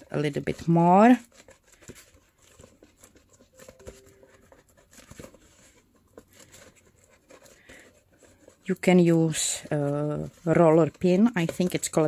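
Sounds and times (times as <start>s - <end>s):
paper rustles: 0.0s - 12.0s.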